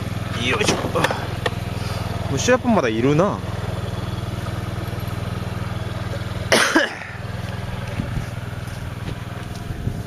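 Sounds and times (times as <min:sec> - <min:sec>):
man coughing: 0:06.5 - 0:07.2.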